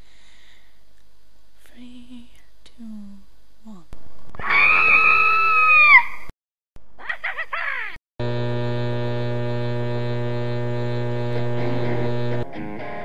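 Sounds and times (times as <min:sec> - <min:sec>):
buzzy hum: 0:08.2 - 0:12.4.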